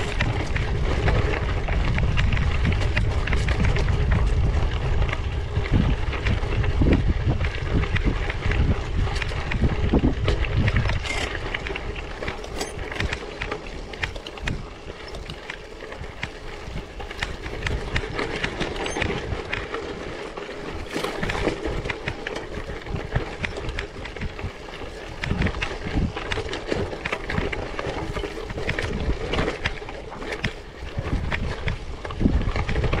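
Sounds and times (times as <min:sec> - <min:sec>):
bicycle tyres crunching: 0:00.0 - 0:33.0
bike rattling: 0:00.0 - 0:33.0
wind on microphone: 0:00.0 - 0:33.0.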